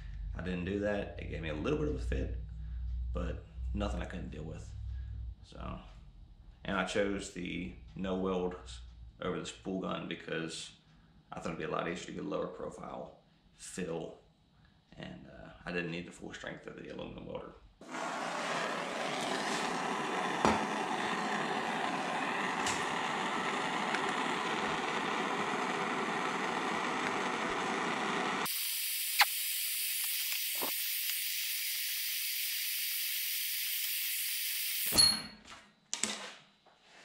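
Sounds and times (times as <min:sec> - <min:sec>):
propane torch hissing: 0:17.8 - 0:34.9
torch valve click: 0:19.6 - 0:35.1.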